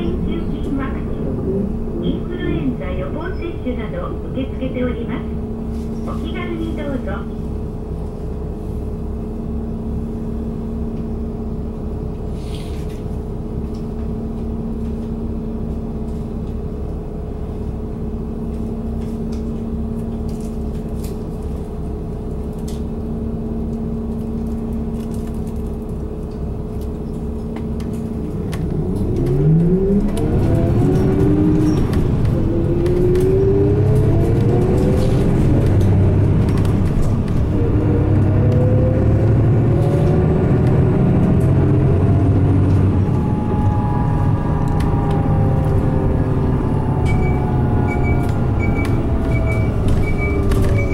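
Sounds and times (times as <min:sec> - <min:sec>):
bus engine rising in pitch: 0:00.0 - 0:04.3, 0:26.0 - 0:50.9
bus diesel engine idling: 0:00.0 - 0:28.7.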